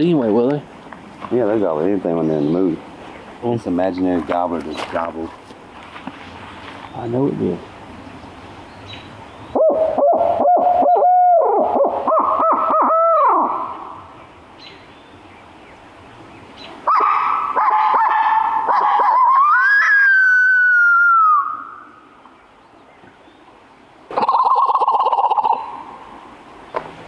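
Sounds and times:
imitation owl hooting: 9.5 - 14.0, 16.8 - 22.0, 24.1 - 26.0.

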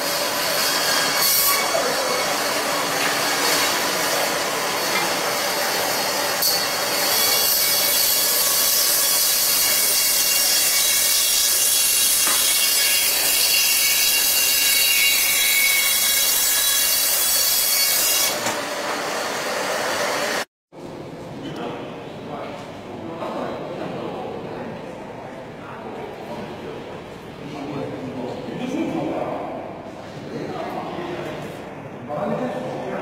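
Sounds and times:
band saw cutting frozen fish: 0.0 - 20.4.

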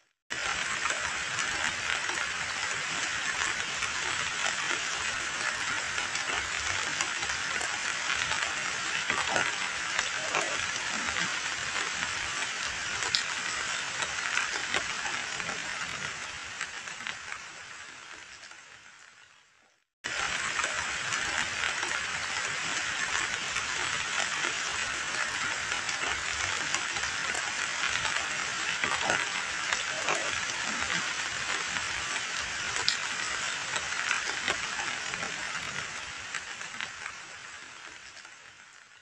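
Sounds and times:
rain splashing into muddy water: 0.3 - 18.9, 20.0 - 39.0.

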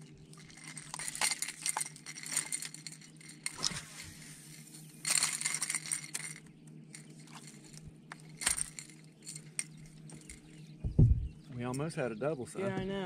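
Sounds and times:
light clinking and rattling: 0.0 - 11.8
fish thrashing: 0.3 - 4.0, 5.0 - 10.5.

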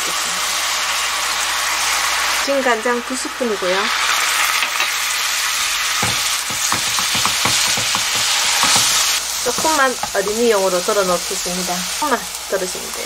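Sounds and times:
sauce sizzling in frying pan: 0.0 - 13.0
spatula scraping pan: 6.0 - 11.5.

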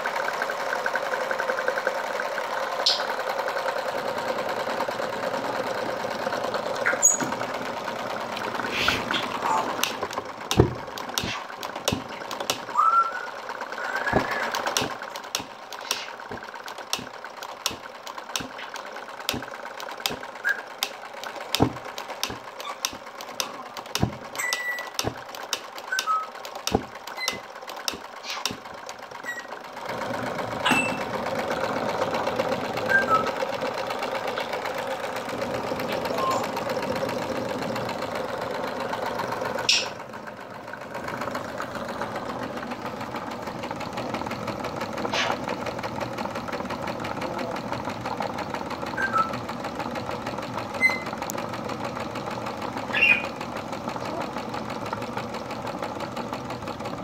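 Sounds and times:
steam engine knocking: 0.0 - 57.0.

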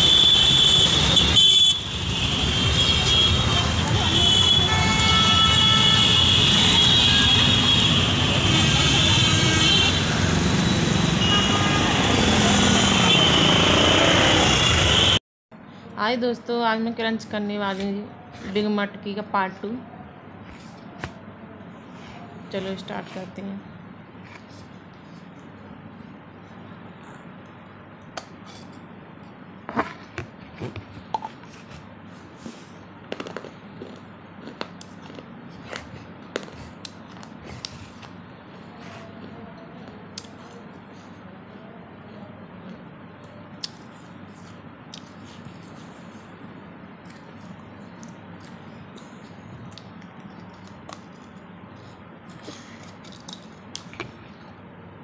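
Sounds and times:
teeth gnawing clay pot: 29.6 - 32.0, 33.1 - 40.6, 43.6 - 46.0, 47.0 - 54.6
teeth crunching clay: 47.0 - 51.4, 52.4 - 54.4.

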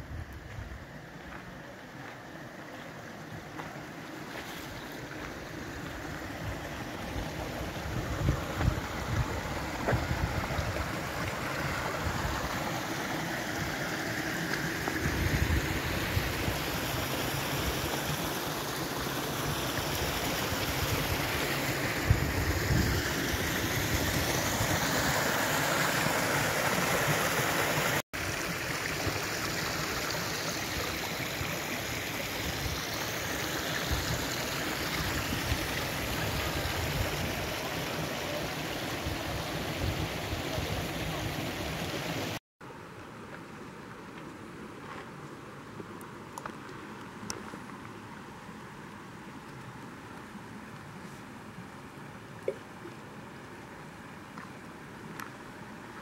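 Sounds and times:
stream rushing over rocks: 0.0 - 42.4.

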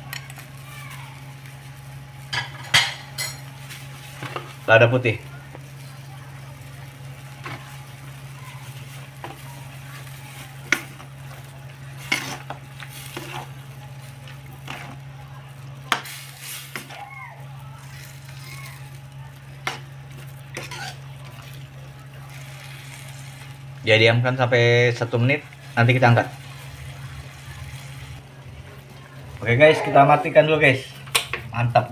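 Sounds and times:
spatula stirring in a wok: 5.5 - 28.3.

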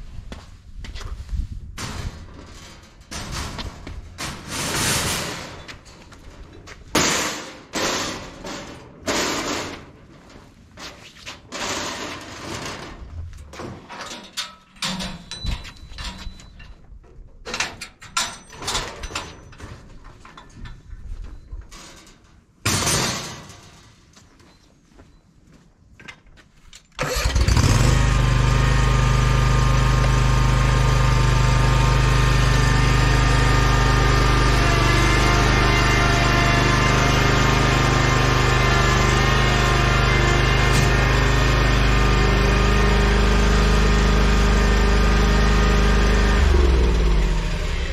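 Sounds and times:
metal mesh ramp clanking: 1.8 - 10.4, 11.3 - 24.1, 27.0 - 43.8
mower engine running: 27.0 - 47.9.

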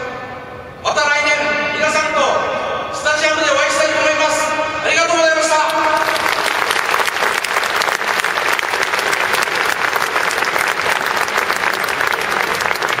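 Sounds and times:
stadium crowd applauding: 5.7 - 13.0.

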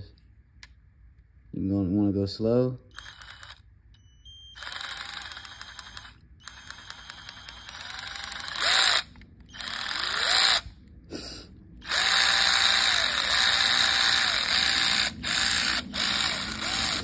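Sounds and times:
cordless ratchet running: 3.0 - 3.6, 4.6 - 10.7, 11.8 - 17.0
motor whining: 4.6 - 10.8, 11.8 - 17.0.

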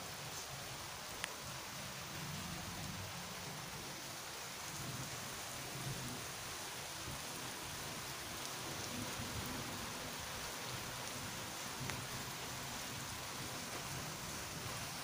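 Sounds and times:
rain on wet pavement: 0.0 - 15.0
faint hail ticks: 0.2 - 1.5, 11.8 - 12.5, 13.4 - 15.0.

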